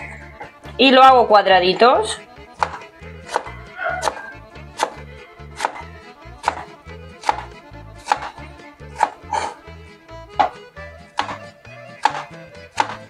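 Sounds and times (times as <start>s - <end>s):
background music: 0.0s - 13.0s
knife chopping on plastic board: 1.8s - 9.6s, 10.4s - 13.0s.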